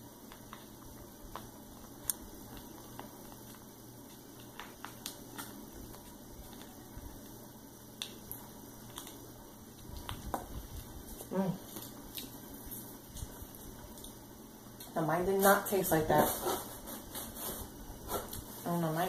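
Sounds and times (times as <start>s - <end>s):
foil packet crinkling: 0.1s - 14.1s.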